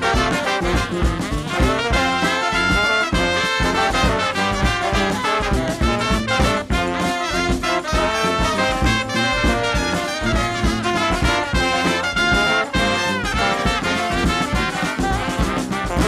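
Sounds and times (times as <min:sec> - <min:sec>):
horn-driven funk music: 0:00.0 - 0:16.0.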